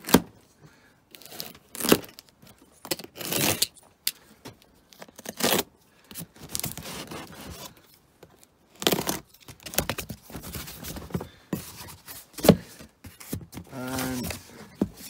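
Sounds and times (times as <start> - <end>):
tape tearing: 1.1 - 3.8, 5.0 - 5.7, 6.4 - 7.8, 8.7 - 10.8
utility knife slicing tape and cardboard: 2.9 - 3.7, 8.8 - 9.2
cardboard scraping: 6.3 - 7.8, 8.8 - 15.0.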